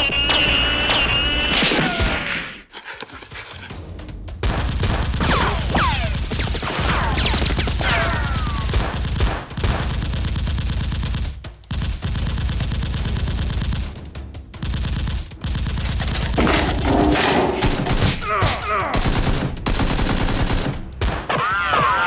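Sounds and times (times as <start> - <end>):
rapid automatic gunfire: 4.4 - 18.2, 18.9 - 21.0.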